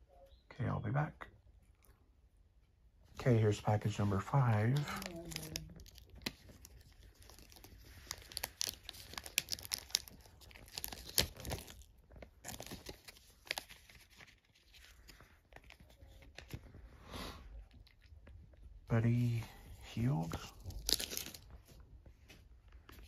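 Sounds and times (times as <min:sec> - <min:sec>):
cards pulled out of pack: 0:03.9 - 0:16.8
foil wrapper crinkling: 0:04.4 - 0:16.7, 0:20.2 - 0:21.8.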